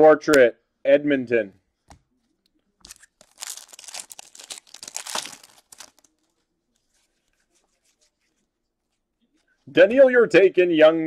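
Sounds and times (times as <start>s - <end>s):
plastic wrapper tearing and crinkling: 2.8s - 6.3s.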